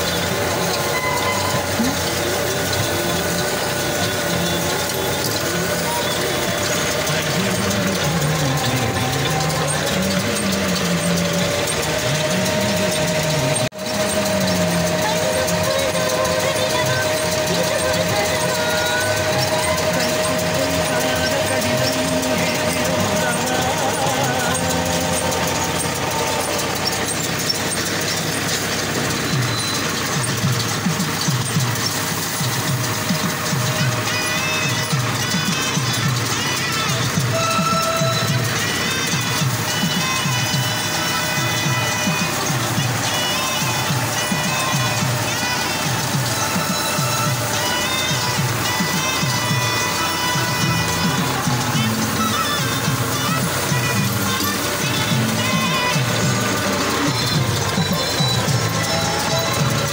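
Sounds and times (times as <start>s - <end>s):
tractor and baler running: 0.0s - 59.9s.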